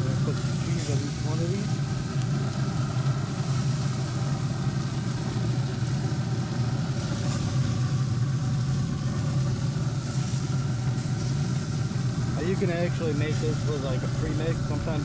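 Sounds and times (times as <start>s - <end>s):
grill fan droning: 0.0s - 15.0s.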